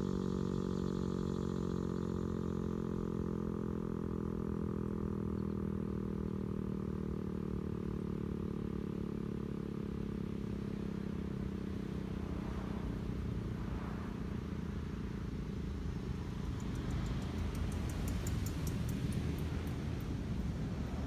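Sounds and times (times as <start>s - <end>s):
low background rumble: 10.3s - 21.0s.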